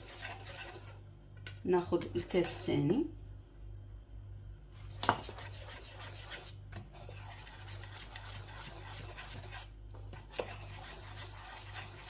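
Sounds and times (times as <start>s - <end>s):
whisk scraping metal bowl: 0.0s - 1.0s, 2.2s - 2.9s, 5.0s - 12.0s.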